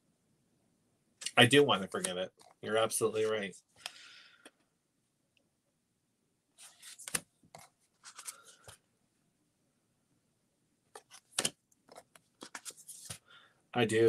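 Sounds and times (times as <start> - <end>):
close rustling and scraping: 6.6 - 8.8, 11.0 - 13.2.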